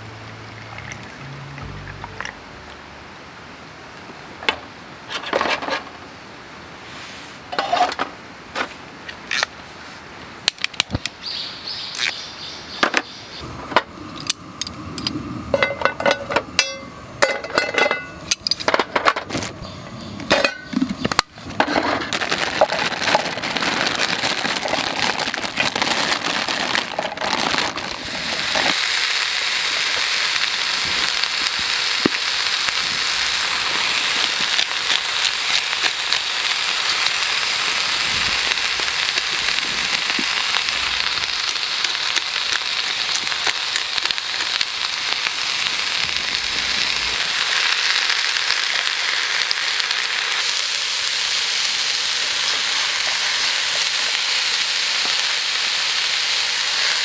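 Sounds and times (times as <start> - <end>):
cooking pots clinking and knocking: 15.5 - 19.3, 20.2 - 22.1
vegetables sizzling in a pan: 19.6 - 57.0.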